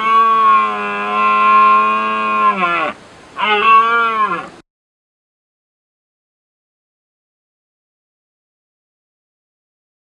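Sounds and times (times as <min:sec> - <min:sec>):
red deer stag roaring: 0:00.0 - 0:04.6.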